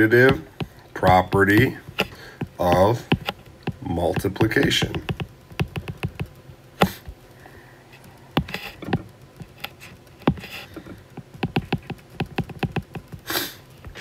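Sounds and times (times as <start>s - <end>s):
stylus tapping on glass screen: 0.2s - 7.0s, 11.2s - 13.1s.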